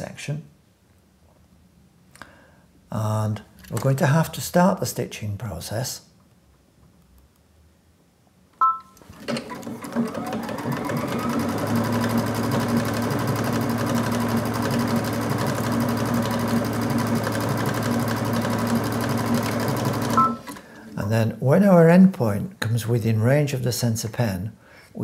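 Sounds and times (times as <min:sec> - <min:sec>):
sewing machine running: 0:09.0 - 0:20.7
short beep: 0:20.2 - 0:20.4.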